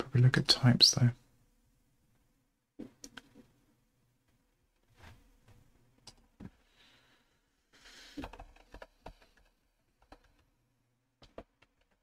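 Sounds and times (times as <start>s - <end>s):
keyboard typing: 8.2s - 10.5s, 11.2s - 12.0s.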